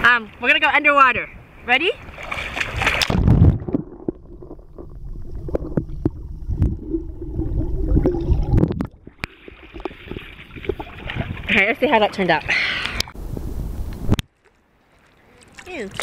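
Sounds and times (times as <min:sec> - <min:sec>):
loud splash into water: 0:02.1 - 0:05.8
underwater gurgling and bubbling: 0:03.2 - 0:11.5.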